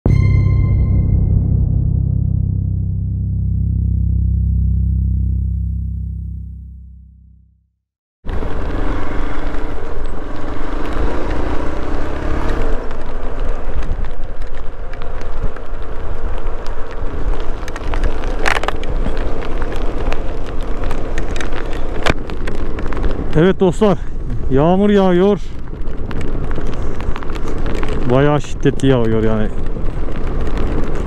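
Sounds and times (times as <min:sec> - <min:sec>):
wind and rain noise: 0:08.2 - 0:31.0.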